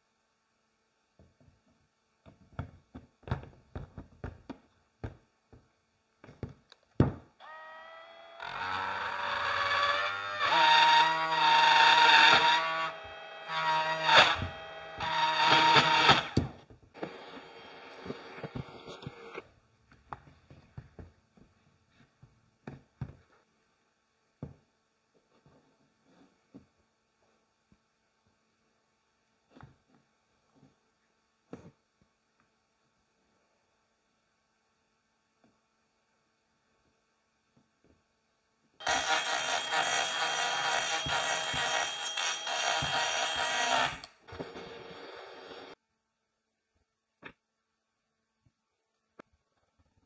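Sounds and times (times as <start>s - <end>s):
electric pole saw motor whining: 7.4s - 16.4s, 38.8s - 45.8s.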